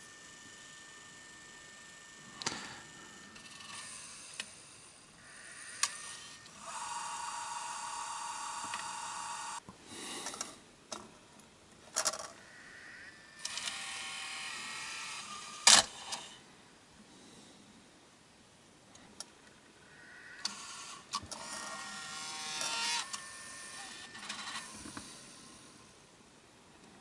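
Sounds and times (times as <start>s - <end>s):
small motors whirring: 0.0s - 9.6s, 12.1s - 16.4s, 20.4s - 25.7s
sharp mechanical clicks: 13.4s - 16.3s.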